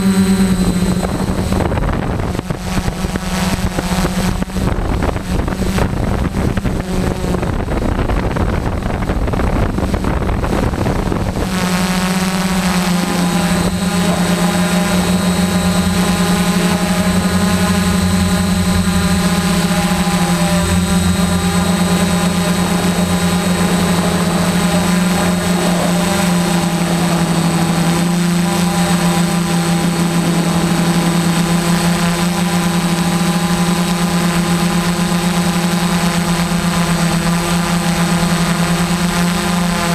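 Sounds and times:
quadcopter motors and propellers: 0:00.0 - 0:39.9.

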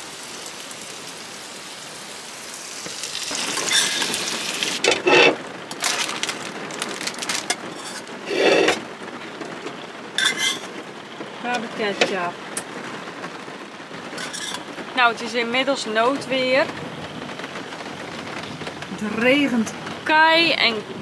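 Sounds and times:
metal spoon scraping a saucepan: 0:03.6 - 0:04.2, 0:04.9 - 0:05.4, 0:07.8 - 0:08.8, 0:10.2 - 0:10.7, 0:14.2 - 0:14.6.

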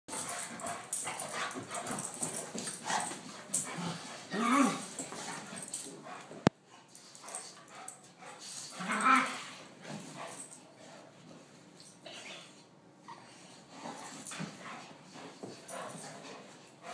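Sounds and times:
dogs scuffling: 0:00.1 - 0:12.0.

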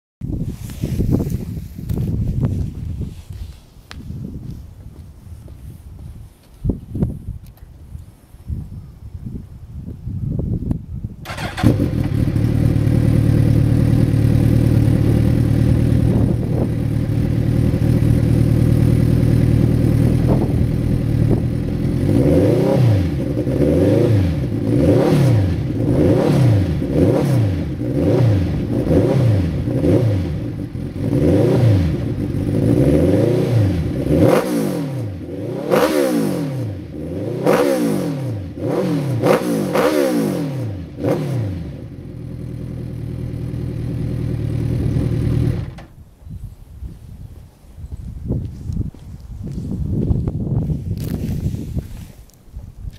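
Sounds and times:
motorcycle engine revving: 0:11.2 - 0:45.9.

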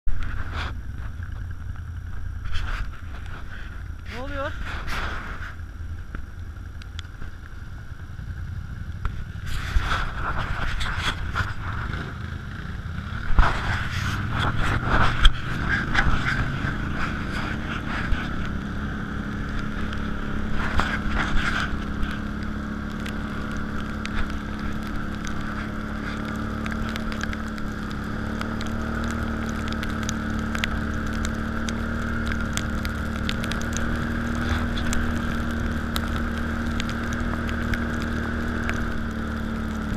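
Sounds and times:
tyre and road rumble: 0:00.0 - 0:39.9
atv engine running: 0:00.1 - 0:39.9.

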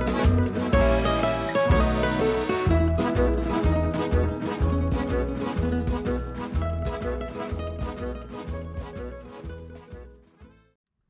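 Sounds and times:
instrumental music with steady beat: 0:00.0 - 0:10.7.

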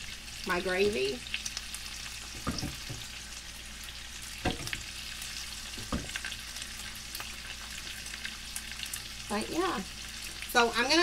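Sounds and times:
meat sizzling in a skillet: 0:00.0 - 0:11.0.

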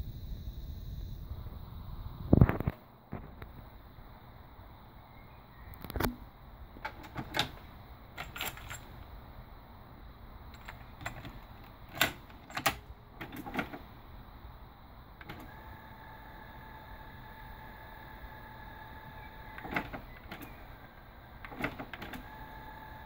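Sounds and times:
tape transport whine: 0:05.7 - 0:09.2, 0:09.9 - 0:23.0
cassette door snapping shut: 0:11.0 - 0:13.8.

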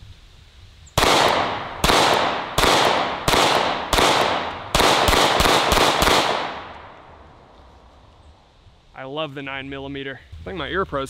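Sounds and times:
pistol shots echoing: 0:01.0 - 0:07.2.

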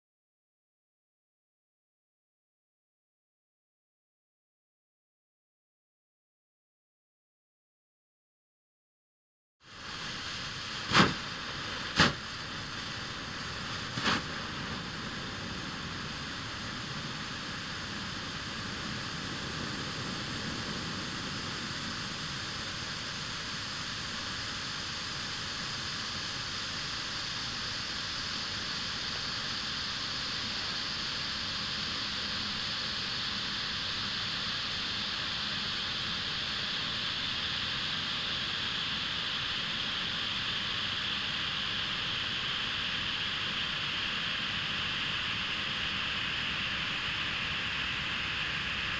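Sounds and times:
flares burning with a hiss: 0:09.6 - 0:48.9
sharp pops of flares igniting: 0:10.7 - 0:12.9, 0:13.6 - 0:14.8.

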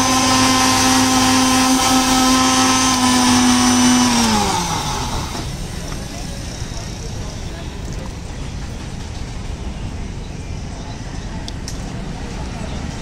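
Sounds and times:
electric blender running: 0:00.0 - 0:05.7.

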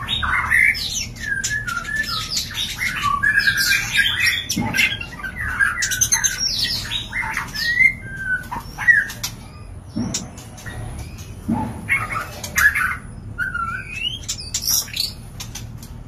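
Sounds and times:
bird whistled call: 0:00.0 - 0:09.3, 0:11.9 - 0:15.1
harsh squawky bird notes: 0:00.0 - 0:09.8, 0:10.6 - 0:15.4.

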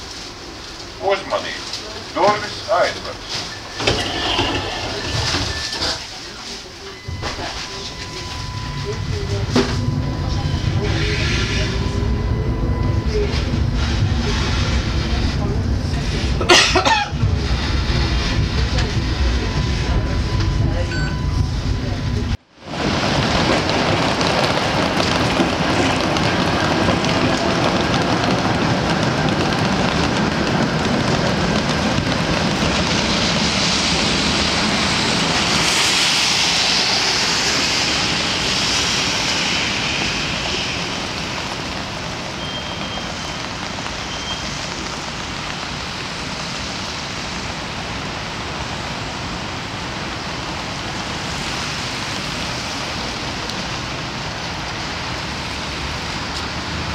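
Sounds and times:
cars driving on wet road: 0:00.0 - 0:56.9
rain hiss: 0:22.6 - 0:56.9.

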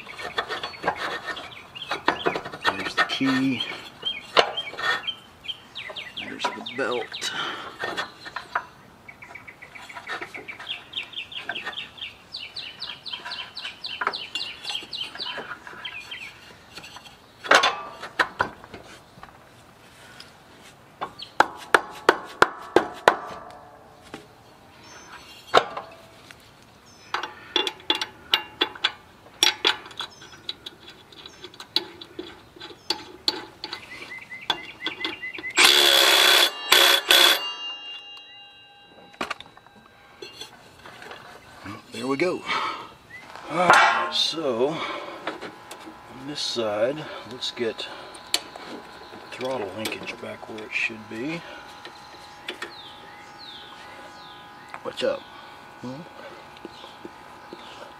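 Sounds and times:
hand tools clicking on metal: 0:27.1 - 0:41.2
metal clinks and knocks: 0:34.5 - 0:42.2.

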